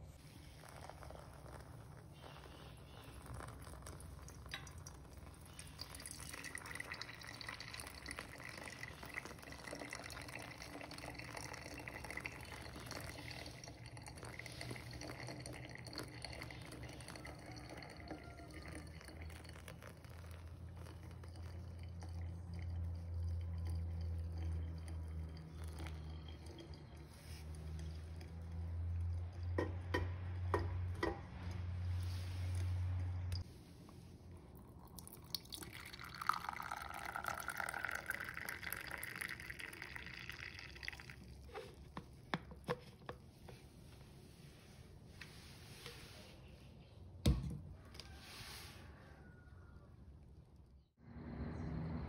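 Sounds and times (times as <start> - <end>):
water pouring onto coffee grounds: 0.2 - 29.6, 31.9 - 44.3
water dripping: 3.0 - 31.6
low rumble: 51.0 - 52.0.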